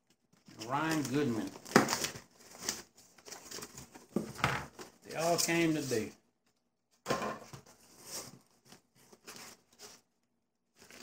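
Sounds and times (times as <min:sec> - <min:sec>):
newspaper rustling: 0:00.0 - 0:06.2, 0:07.7 - 0:10.1, 0:10.7 - 0:11.0.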